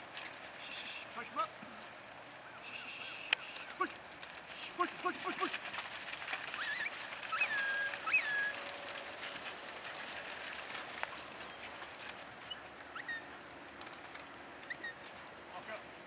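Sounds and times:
short whistles: 2.6 - 3.8.

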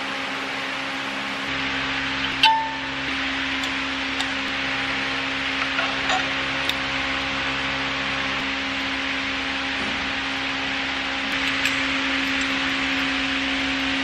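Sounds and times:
background hum and hiss: 0.0 - 14.0
metal tools clicking and tapping: 5.6 - 6.8, 11.3 - 13.1.

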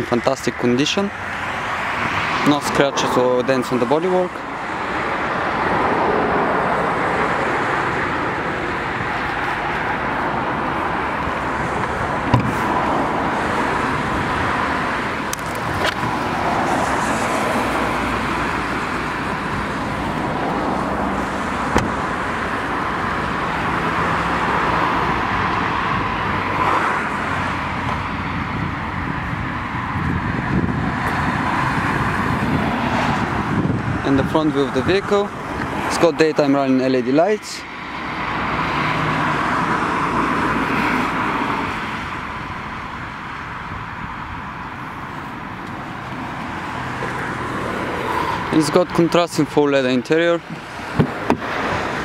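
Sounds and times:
road traffic noise: 0.0 - 52.0.

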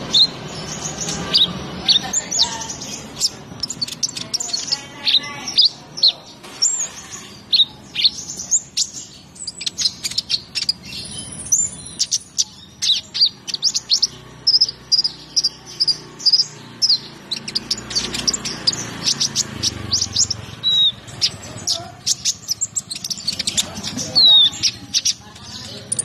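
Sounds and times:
sunbird singing high chirps: 0.0 - 26.0.

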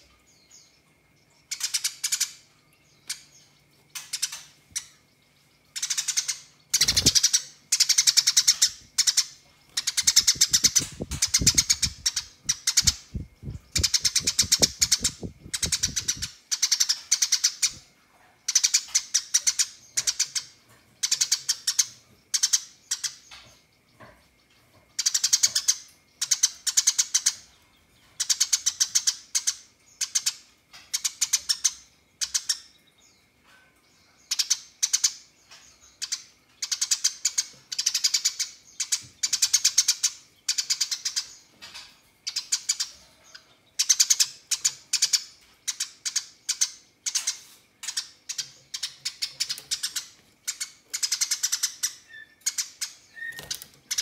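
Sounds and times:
sparrow chirping: 0.0 - 54.0.

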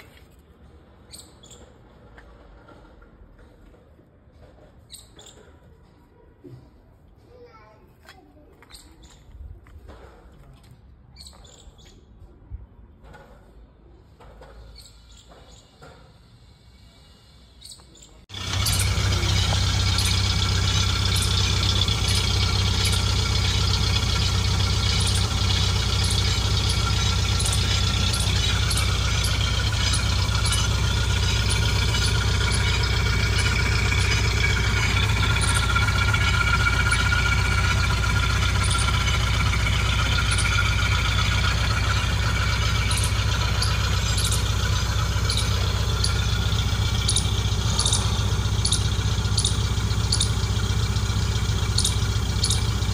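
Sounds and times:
engine running steadily: 18.3 - 52.9.

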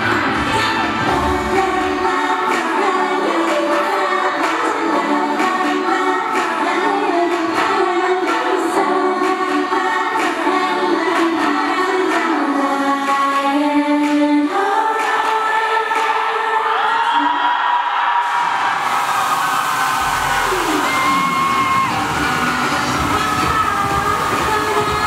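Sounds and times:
group singing in unison: 0.0 - 19.9
pop backing track with beat: 20.6 - 25.0.

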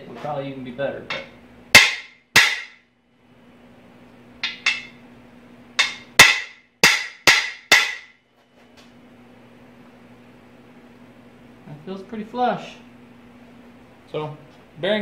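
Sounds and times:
hammer striking metal: 1.1 - 2.8, 4.4 - 5.0, 5.8 - 8.2.

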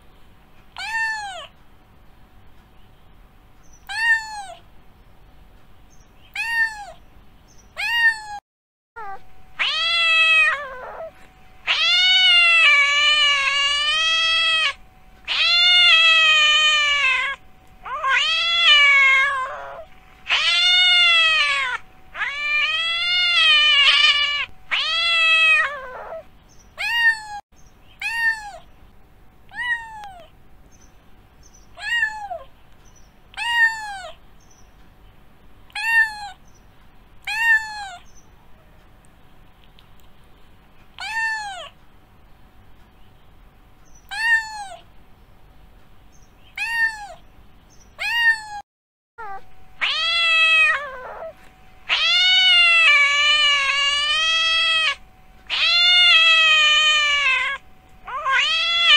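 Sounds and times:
cat meowing: 0.8 - 1.5, 3.8 - 4.6, 6.3 - 7.0, 7.8 - 8.4, 9.0 - 27.4, 28.0 - 28.7, 29.5 - 30.3, 31.7 - 32.5, 33.4 - 34.2, 35.7 - 36.4, 37.2 - 38.1, 41.0 - 41.8, 44.1 - 44.9, 46.5 - 47.2, 48.0 - 48.6, 49.2 - 58.9.

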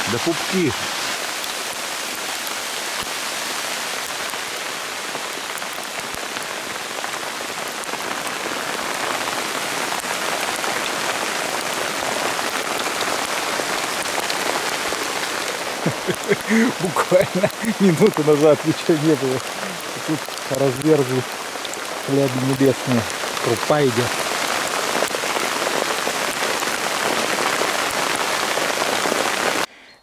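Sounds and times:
snow pellets hissing on tent: 0.0 - 2.3.

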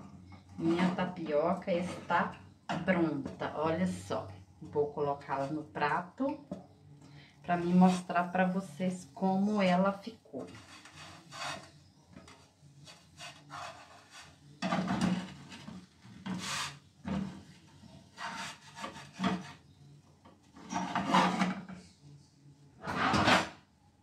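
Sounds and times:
spatula scraping frying pan: 9.4 - 17.3, 18.1 - 19.7, 20.6 - 21.7, 22.8 - 23.6.

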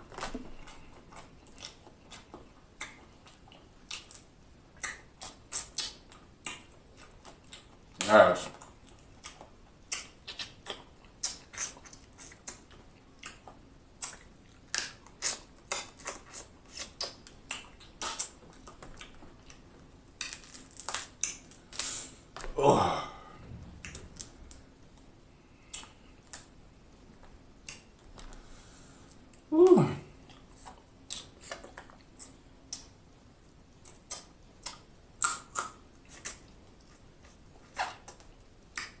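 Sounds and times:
mouth smacking and sucking: 4.8 - 7.7, 9.2 - 19.6, 20.2 - 22.4, 33.8 - 36.5.

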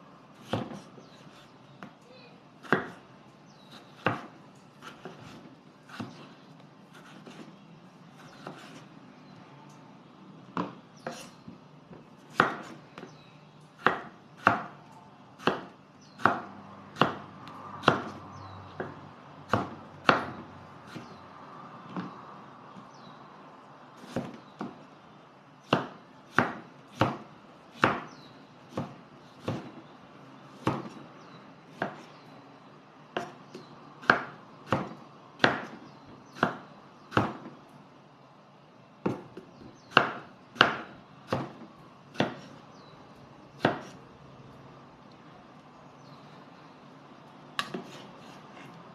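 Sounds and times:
knife chopping on wooden board: 0.4 - 1.5, 2.6 - 3.0, 3.7 - 7.5, 8.2 - 8.8, 10.6 - 13.1, 13.8 - 14.8, 15.4 - 18.2, 18.8 - 21.2, 24.0 - 24.8, 25.6 - 29.8, 30.6 - 31.0, 31.7 - 32.1, 33.2 - 37.6, 39.0 - 42.6, 43.6 - 44.0, 47.6 - 48.8.

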